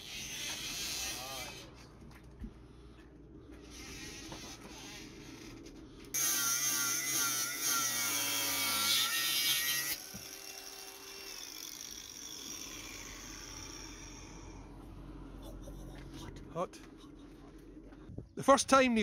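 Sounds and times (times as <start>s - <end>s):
faint hum: 1.0s - 6.2s.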